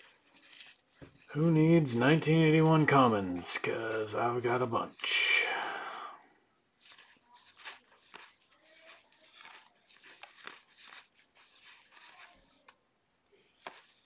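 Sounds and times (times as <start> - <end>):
cards flicking and rustling: 0.0 - 1.6, 6.8 - 12.8, 13.5 - 14.0.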